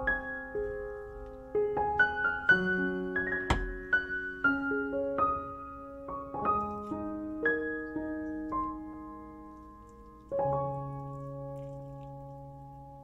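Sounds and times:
piano notes ringing: 0.0 - 13.0
short knock: 3.5 - 3.8.

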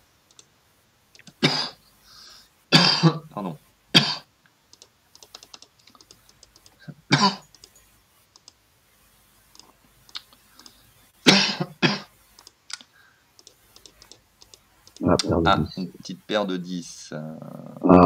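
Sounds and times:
keyboard typing and clicking: 0.3 - 0.5, 4.7 - 6.8, 7.4 - 8.6, 9.5 - 10.8, 12.3 - 15.3
person coughing: 1.4 - 1.8, 2.7 - 3.2, 7.1 - 7.4, 11.3 - 12.1.

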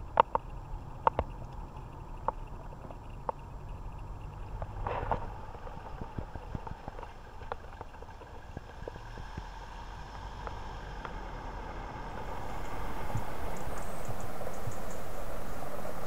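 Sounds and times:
small ticks and clicks: 0.0 - 11.4
car engine and tyre rumble: 0.0 - 16.0
steady hiss: 0.0 - 16.0.

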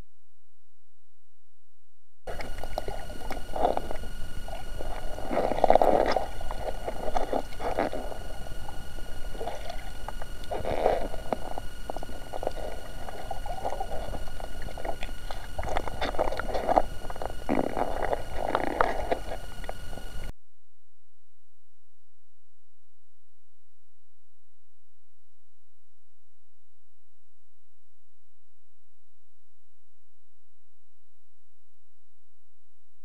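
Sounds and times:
bubbles: 2.3 - 20.3
faint high whine: 2.3 - 20.3
underwater gurgling and sloshing: 2.3 - 20.3.

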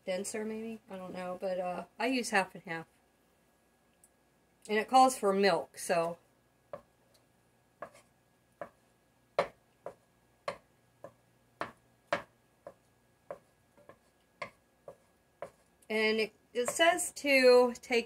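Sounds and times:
wooden spoon knocking a pot: 9.4 - 15.6.

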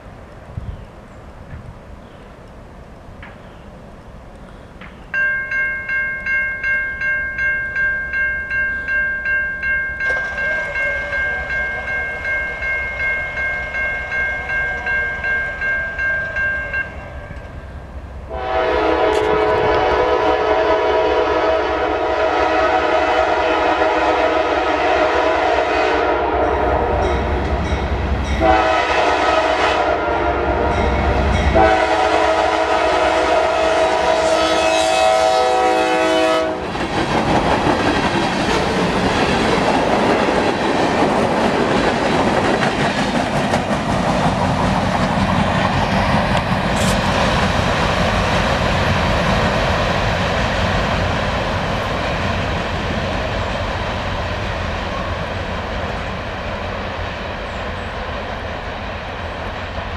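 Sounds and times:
freight train wheels clattering: 4.8 - 17.6, 36.5 - 54.6
train air horn blasts: 10.1 - 12.0, 18.3 - 27.5, 28.3 - 36.7.

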